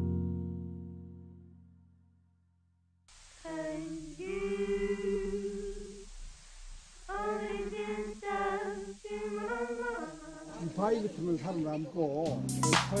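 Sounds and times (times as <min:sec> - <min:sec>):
steady hiss: 0:03.1 - 0:13.0
background music: 0:10.5 - 0:13.0.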